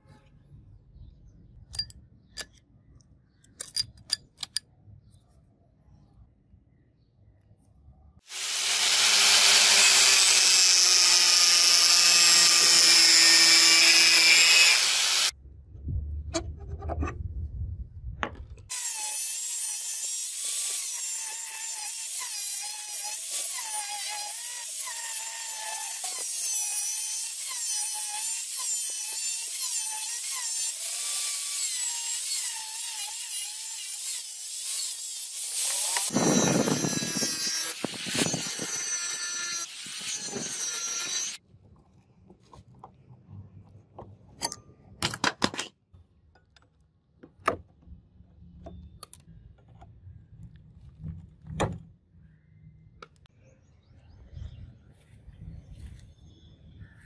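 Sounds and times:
angle grinder cutting steel: 8.3 - 15.3, 18.7 - 41.4
low rumble: 15.4 - 18.7.

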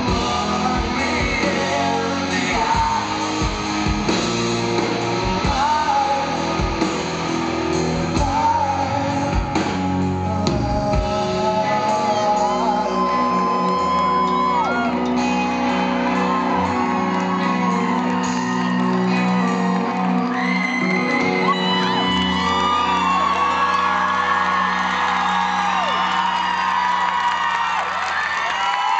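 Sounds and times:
live rock band playing: 0.0 - 27.7
electric guitars: 0.0 - 28.9
audience shouting and whooping: 11.5 - 28.9.

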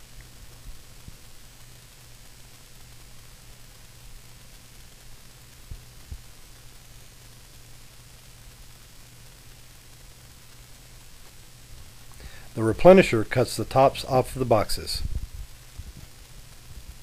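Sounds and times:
faint hiss: 0.0 - 17.0
soft low thumps: 15.0 - 16.1.

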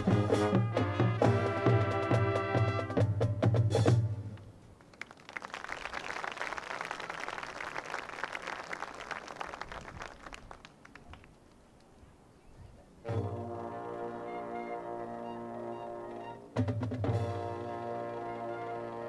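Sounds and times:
brass and drums chord: 0.0 - 4.3, 13.0 - 19.0.

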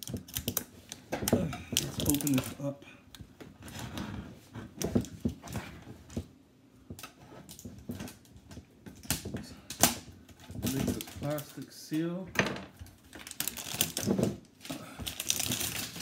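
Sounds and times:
plastic seal scraping and crinkling: 0.0 - 2.7, 7.0 - 11.7, 13.1 - 16.0.

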